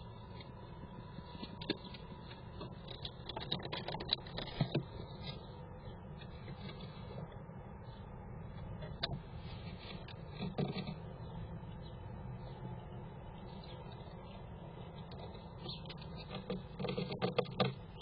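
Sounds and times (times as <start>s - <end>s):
faint steady hum: 0.0s - 18.0s
squirrel claws scratching wood: 1.2s - 7.3s, 8.6s - 11.4s, 14.8s - 18.0s.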